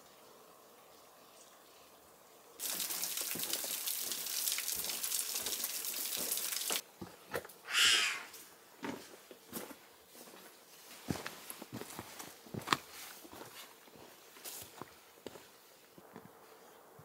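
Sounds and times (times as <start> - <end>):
water pouring: 2.6 - 6.8.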